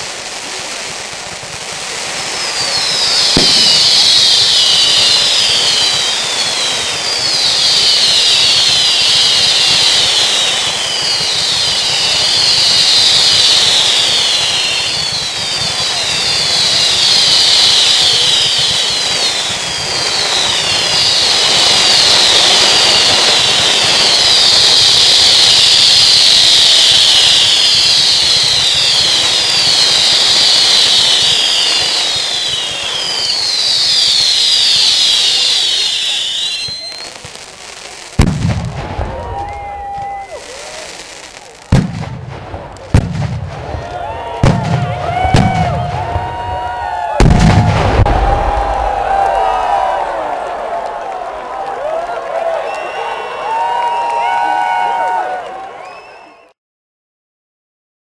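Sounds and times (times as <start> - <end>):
steady firework hiss: 0.0 - 43.6
whistling fireworks: 0.0 - 56.6
firework bang: 2.5 - 37.4, 38.1 - 50.5.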